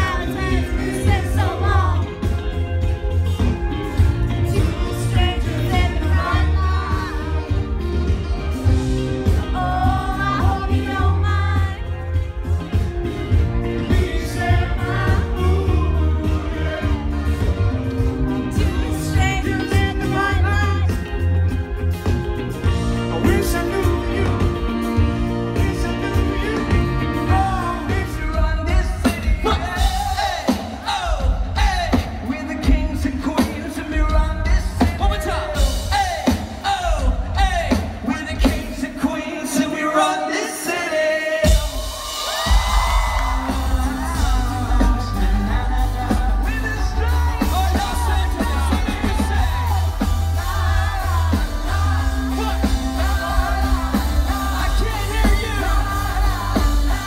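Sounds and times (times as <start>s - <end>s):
person singing: 0.0s - 2.5s, 9.2s - 21.2s, 22.6s - 57.0s
live band over a pa: 0.0s - 57.0s.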